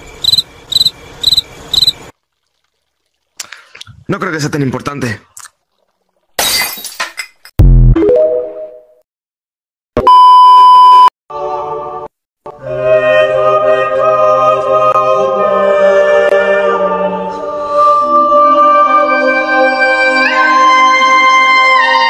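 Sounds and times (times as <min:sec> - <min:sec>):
loud steady beep: 0:10.0 - 0:11.1
a cappella voices singing chords: 0:11.3 - 0:22.0.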